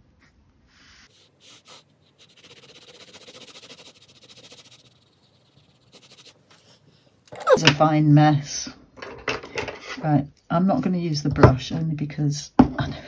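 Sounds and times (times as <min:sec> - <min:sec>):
pencil scratching on paper: 0:00.1 - 0:07.1.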